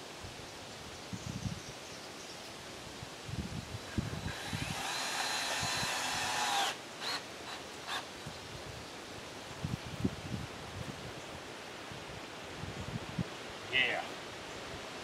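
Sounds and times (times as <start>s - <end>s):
power drill driving screw: 4.1s - 8.0s.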